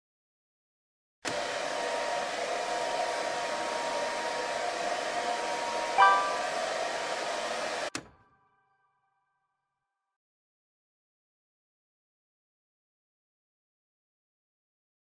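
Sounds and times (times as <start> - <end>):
hair dryer blowing: 1.3 - 8.0
multi-tone completion chime: 6.0 - 6.6.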